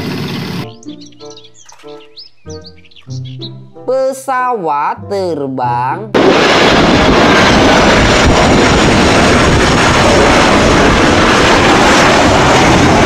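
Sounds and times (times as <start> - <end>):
jet engines running: 0.0 - 2.1, 6.1 - 13.0.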